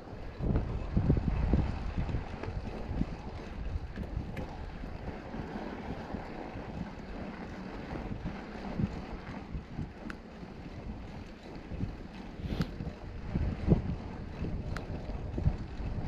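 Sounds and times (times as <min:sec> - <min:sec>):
wind buffeting microphone: 0:00.0 - 0:16.0
wind thumps on microphone: 0:00.4 - 0:04.7, 0:11.8 - 0:16.0.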